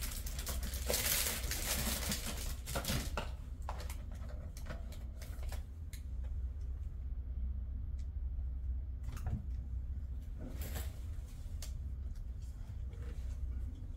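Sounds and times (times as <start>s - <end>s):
plastic wrapper crinkling: 0.0s - 3.2s.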